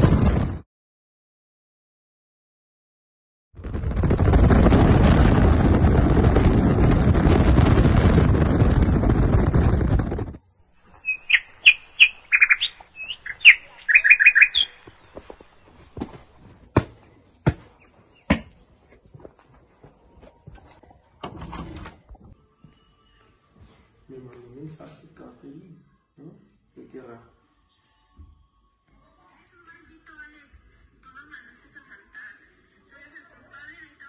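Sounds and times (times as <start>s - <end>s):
wind rushing in moving car: 3.6s - 10.5s
birds chirping: 10.4s - 16.2s, 16.8s - 18.9s
footsteps on dirt: 14.5s - 20.9s.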